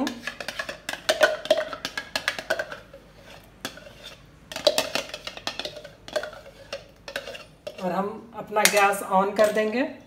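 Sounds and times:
spoon knocking and scraping pan: 0.0 - 8.0.

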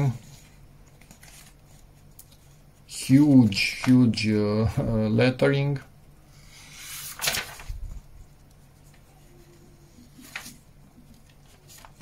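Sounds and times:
paper pages rustling: 0.0 - 4.2, 6.6 - 12.0.

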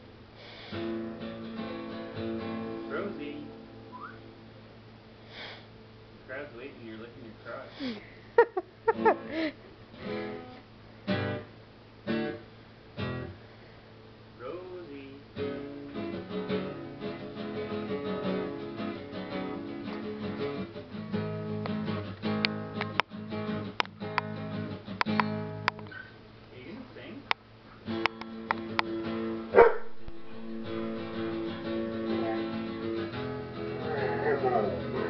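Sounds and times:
acoustic guitar strumming: 0.6 - 4.6, 8.9 - 13.4, 14.4 - 26.2, 27.7 - 35.0.

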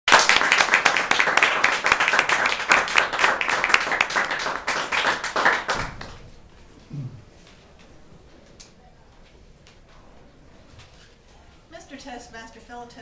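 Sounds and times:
audience applauding: 0.1 - 6.2.

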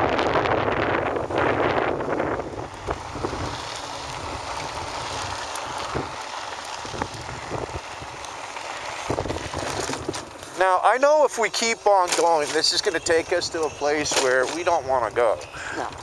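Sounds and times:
wind buffeting microphone: 0.0 - 10.4.

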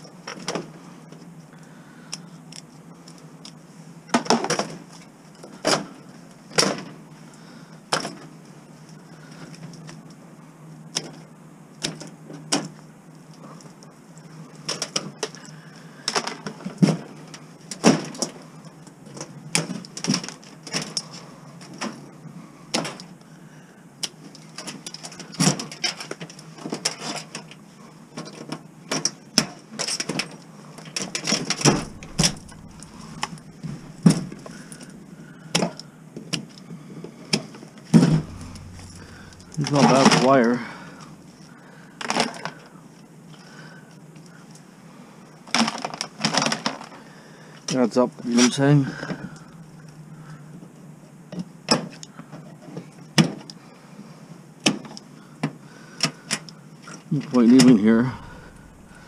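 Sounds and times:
scrap metal knocking and clanking: 38.0 - 41.0.

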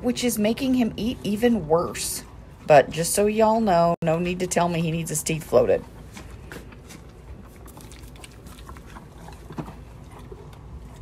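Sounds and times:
horse crunching a treat: 5.8 - 11.0.

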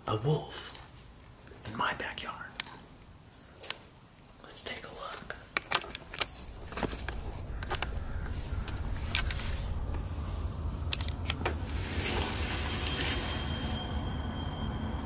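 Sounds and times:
camera handling rumble: 5.6 - 10.1, 10.8 - 11.6
faint high tone: 12.5 - 15.0.

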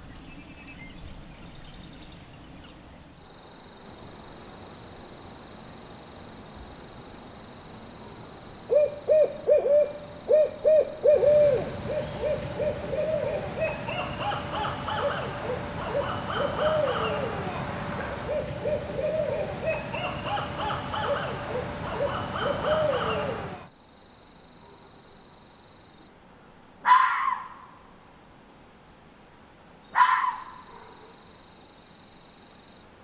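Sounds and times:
owls hooting and cackling: 8.7 - 23.7, 26.8 - 27.6, 30.0 - 30.6.

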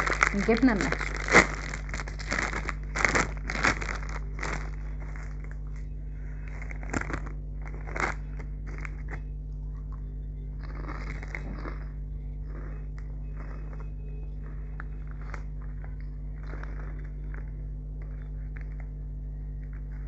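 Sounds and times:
plastic snack bag crackling: 0.0 - 5.8, 6.4 - 9.2, 10.6 - 17.6
crunchy snacks being chewed: 0.0 - 20.0.

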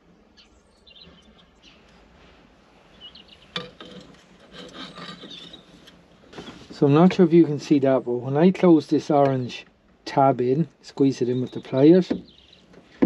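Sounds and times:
wires rubbing and scraping: 1.5 - 7.4.

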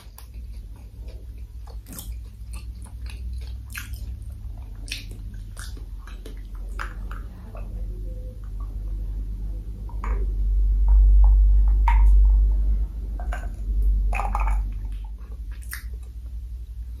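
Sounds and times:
low rumble: 4.0 - 17.0.

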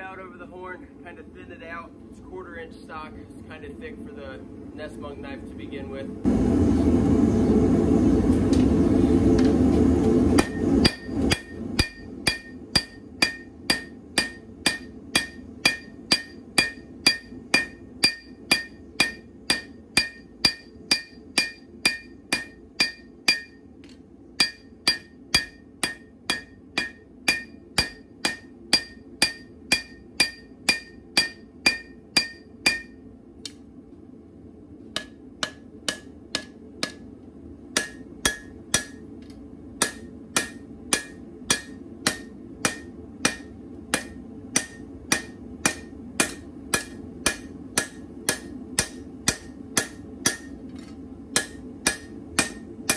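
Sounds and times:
low rushing noise: 6.1 - 11.8
hammer ringing on anvil: 10.4 - 23.6, 24.4 - 33.0, 35.0 - 37.0, 37.8 - 39.0, 39.8 - 50.6, 51.4 - 52.9.

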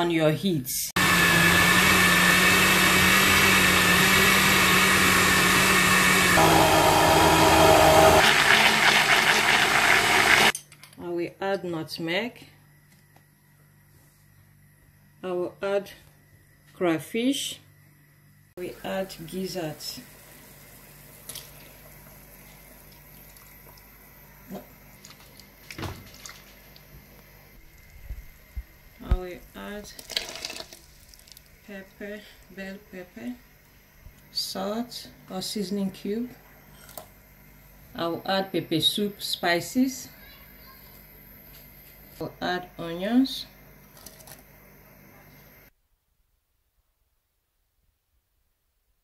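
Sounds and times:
blender running: 1.0 - 10.5
water sloshing in pot: 24.9 - 26.9, 30.0 - 31.6.

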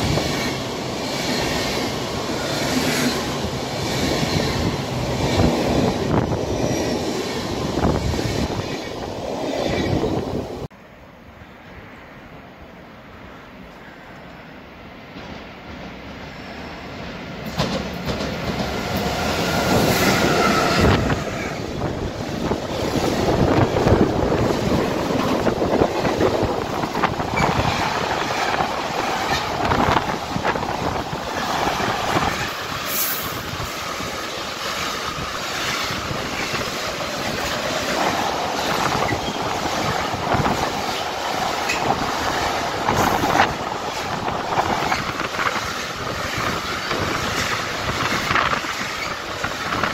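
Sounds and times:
train wheel squeal: 6.4 - 7.4, 8.0 - 10.2, 16.2 - 16.9, 27.3 - 28.5, 38.6 - 40.0, 44.7 - 45.2, 46.3 - 49.3
wheels clacking over rail joints: 17.4 - 49.9.

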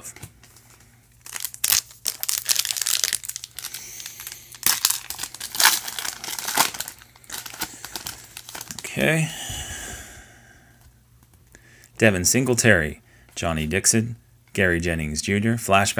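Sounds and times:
foil wrapper tearing and crinkling: 1.2 - 8.8.

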